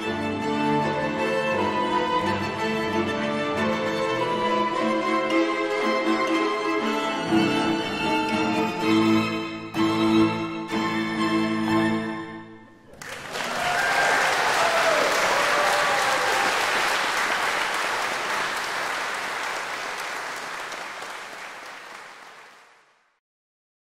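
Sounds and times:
string quartet chord: 0:00.0 - 0:12.9
audience applause: 0:12.9 - 0:23.0.

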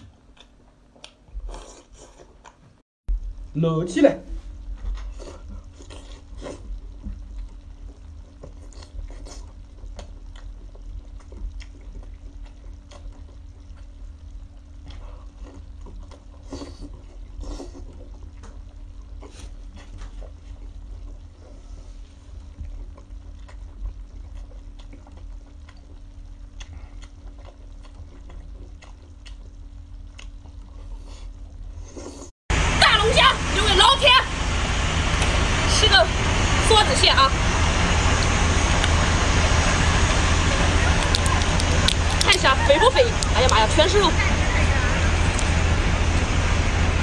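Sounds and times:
person eating wet mouth sounds: 0:00.0 - 0:02.6, 0:05.0 - 0:14.0, 0:22.7 - 0:32.3
low steady hum: 0:00.0 - 0:47.0.

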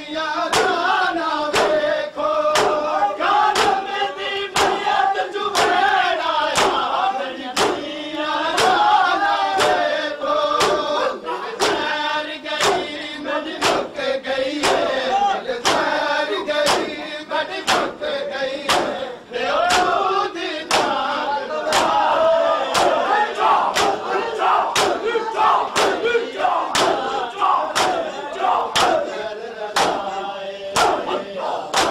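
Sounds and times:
men chanting in unison: 0:00.0 - 0:31.9
hands striking chests: 0:14.6 - 0:14.9, 0:27.8 - 0:28.0.

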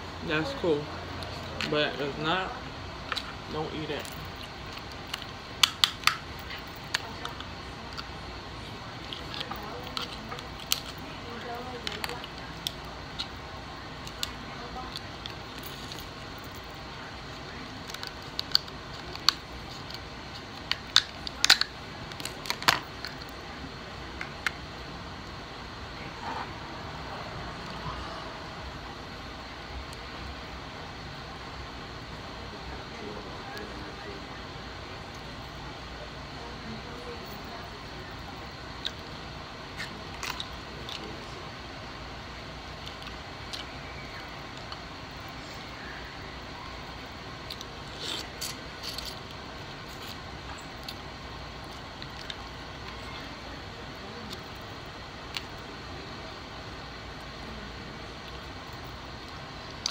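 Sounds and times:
low background hum: 0:00.0 - 0:59.9
crisp chewing crunches: 0:46.6 - 0:53.2.

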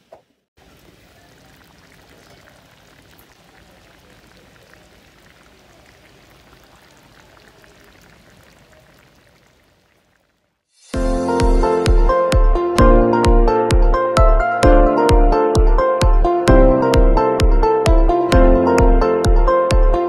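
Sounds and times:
pot simmering bubbling and crackle: 0:00.6 - 0:10.7.

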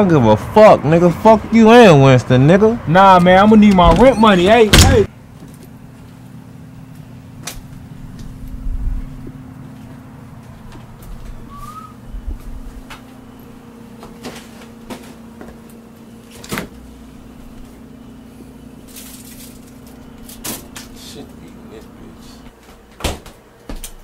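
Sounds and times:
steady low hum: 0:00.0 - 0:22.8
refrigerator door opening: 0:03.2 - 0:05.1.

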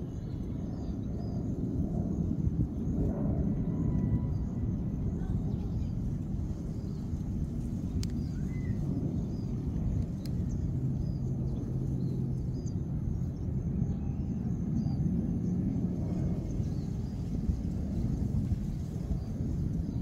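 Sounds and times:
small birds chirping: 0:00.0 - 0:02.9, 0:03.7 - 0:20.0
low outdoor rumble: 0:00.0 - 0:20.0
light clicks: 0:10.0 - 0:10.5.

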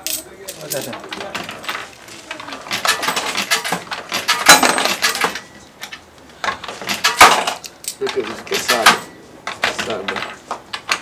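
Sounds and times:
coins clinking in gambling machine: 0:00.0 - 0:02.0, 0:02.7 - 0:05.6, 0:06.9 - 0:10.4.

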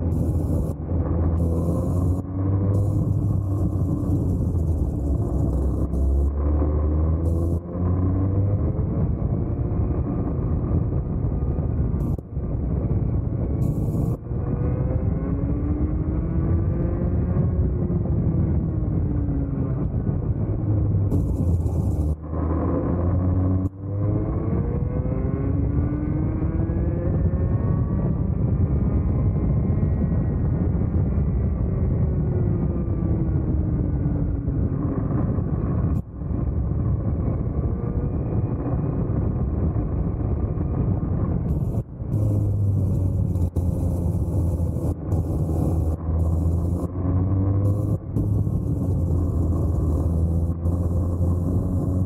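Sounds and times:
kart engine revving: 0:41.5 - 0:52.0.

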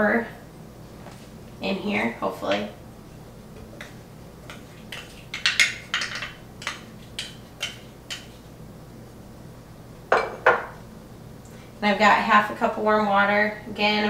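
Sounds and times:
spoon tapping and scraping cup: 0:03.8 - 0:08.4.

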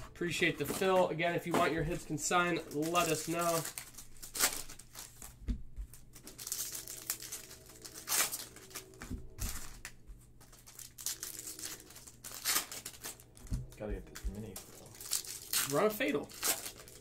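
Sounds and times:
foil wrapper crinkling: 0:01.9 - 0:17.0
foil ripping: 0:02.7 - 0:05.4, 0:06.1 - 0:17.0.

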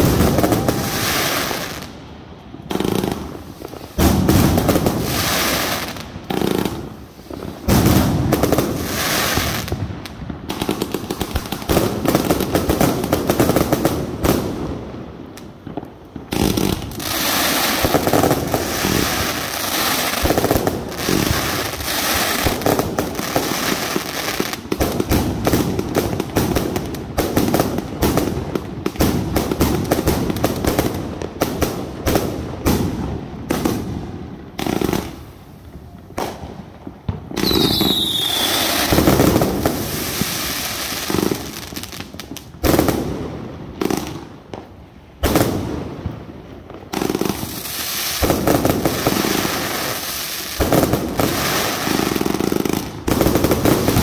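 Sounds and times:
firework whistle: 0:00.0 - 0:01.9, 0:37.4 - 0:39.2
fireworks launching and bursting: 0:00.0 - 0:54.0.

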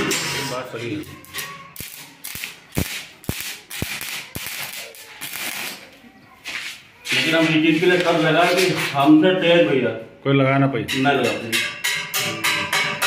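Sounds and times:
welding arc pops and crackling: 0:01.8 - 0:05.9.

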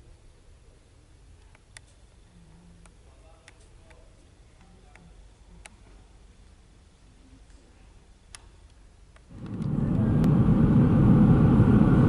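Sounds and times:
low steady hum: 0:00.0 - 0:12.0
faint sharp clicks: 0:08.3 - 0:09.8.

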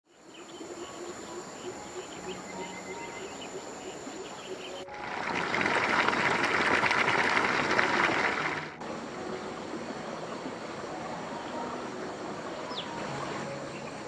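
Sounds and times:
high-pitched insect drones: 0:00.3 - 0:04.8.

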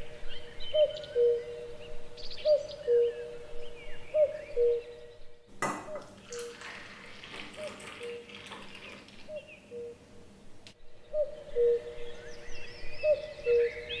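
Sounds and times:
coffee pouring into metal tumbler: 0:06.2 - 0:09.3.

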